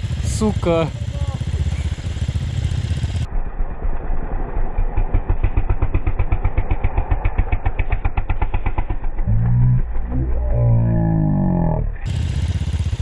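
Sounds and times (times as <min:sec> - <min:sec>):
motorcycle engine idling: 0:00.0 - 0:03.3, 0:05.0 - 0:11.2, 0:11.8 - 0:13.0
deeper louder engine note: 0:02.8 - 0:13.0.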